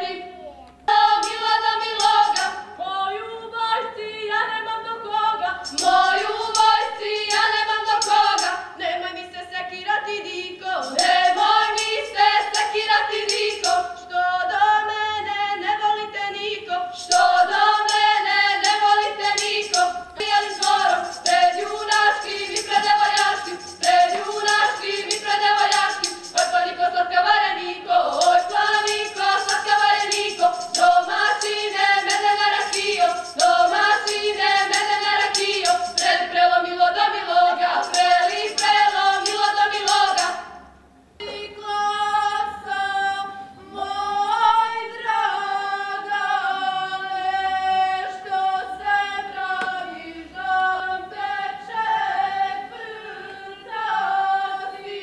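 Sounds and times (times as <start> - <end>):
women singing a folk song: 0.0 - 55.0.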